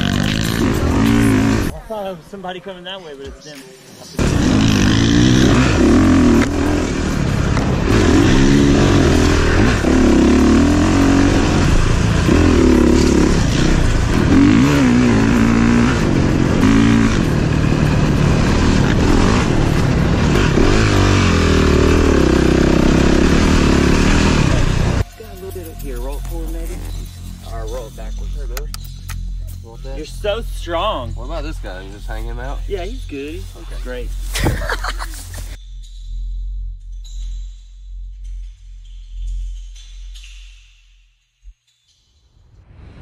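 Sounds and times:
dirt bike engine revving: 0.0 - 1.7, 4.2 - 25.0.

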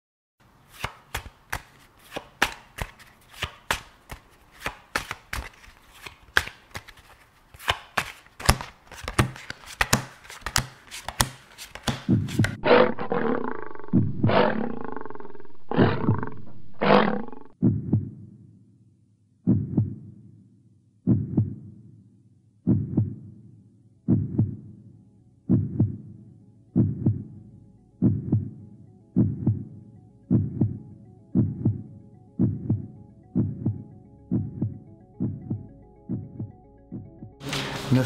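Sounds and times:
lion roars and growls: 12.6 - 17.6.

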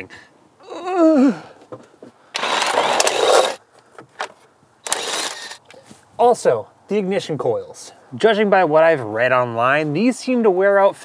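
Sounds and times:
cordless power tool bursts: 2.4 - 3.6, 4.8 - 5.6.

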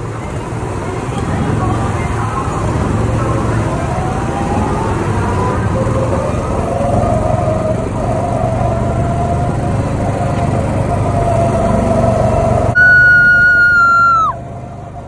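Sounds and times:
go-kart engine running: 0.0 - 15.0
loud steady high tone: 7.4 - 15.0.

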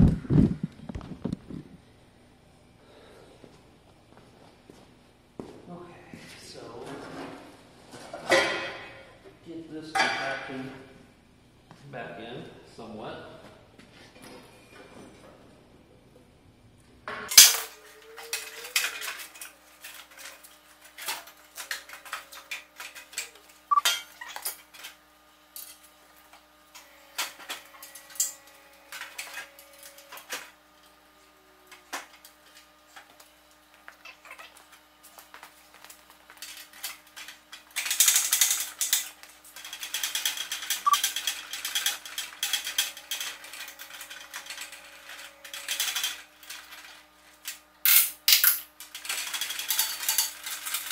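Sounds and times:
metal tools clicking and clanking: 17.3 - 25.0, 36.4 - 50.9.

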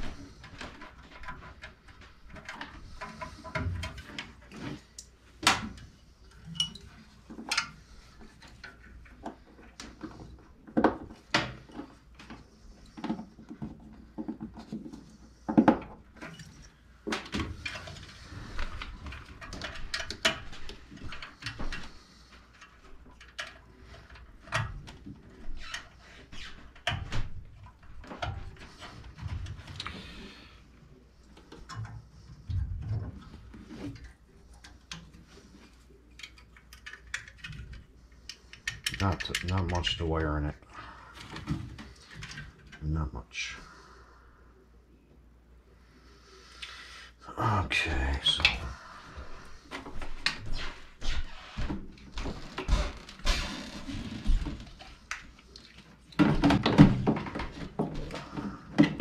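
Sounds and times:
metal parts and tools clinking: 6.3 - 7.8.

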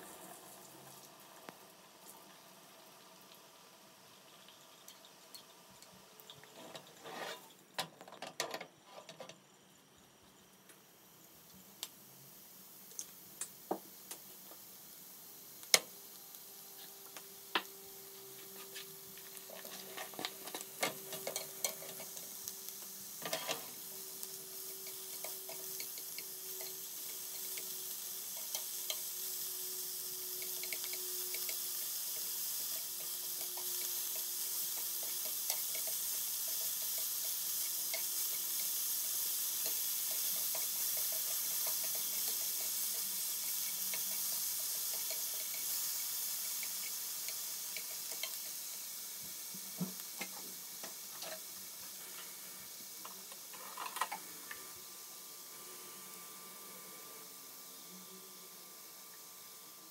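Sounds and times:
vegetables sizzling in a pan: 0.0 - 7.8, 8.8 - 59.9.

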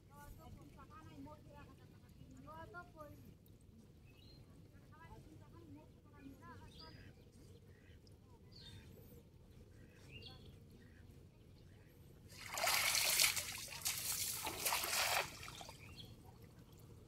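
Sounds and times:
cast net splashing on water: 12.3 - 15.9.

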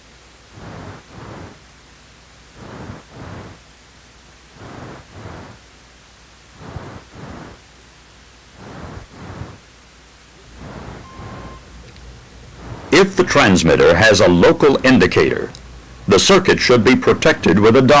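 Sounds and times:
steady low hum: 0.0 - 18.0
soft swishing sounds: 0.5 - 1.6, 2.5 - 3.7, 4.5 - 5.6, 6.5 - 7.6, 8.6 - 9.7, 10.4 - 11.8, 12.4 - 13.8.

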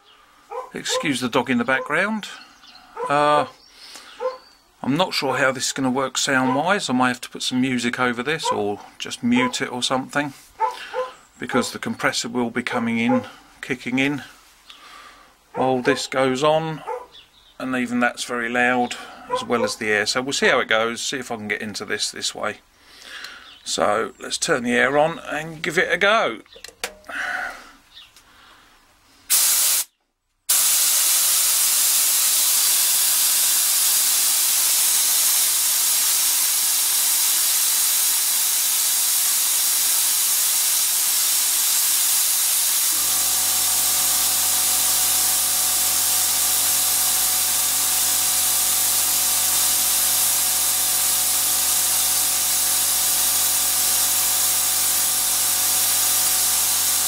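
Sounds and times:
compressed air hissing: 3.8 - 4.3, 29.2 - 29.9, 30.5 - 57.0
air compressor humming: 29.3 - 29.9, 30.5 - 57.0.

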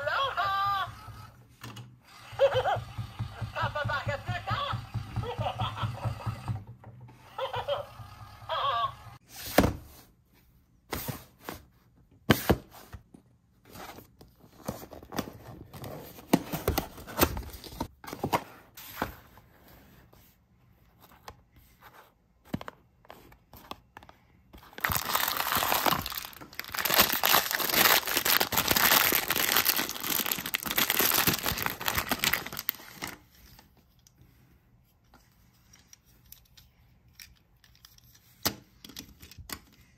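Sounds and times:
packaging clicks and clunks: 22.5 - 33.2
packaging crinkling and tearing: 24.6 - 33.2.

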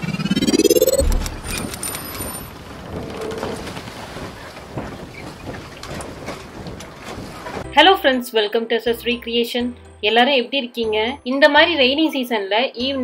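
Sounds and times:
low boom: 0.0 - 1.8
rising swoosh: 0.0 - 2.0.

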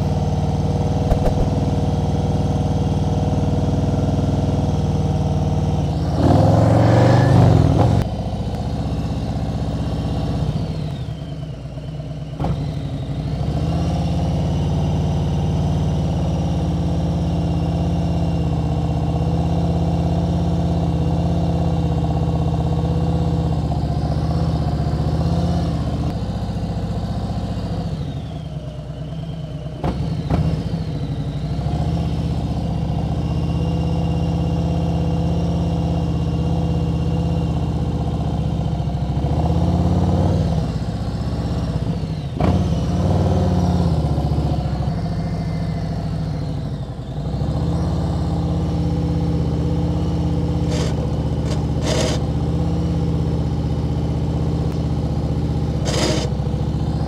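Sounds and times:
motorcycle engine running: 0.0 - 6.2
loud rush of noise: 1.1 - 1.7.

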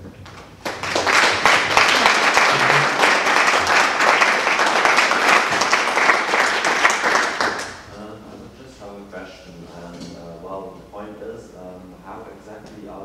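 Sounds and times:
audience applauding: 0.6 - 7.9.

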